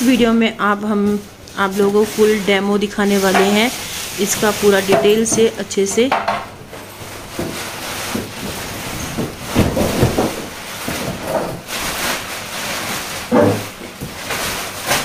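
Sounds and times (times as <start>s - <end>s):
plastic sheet crinkling: 0.0s - 5.9s, 6.6s - 15.0s.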